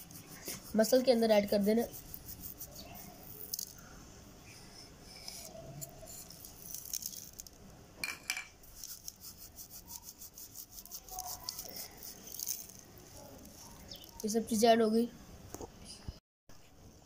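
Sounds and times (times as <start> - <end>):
seeds crackling and rustling: 0.0 - 3.9, 5.2 - 7.8, 8.6 - 14.6.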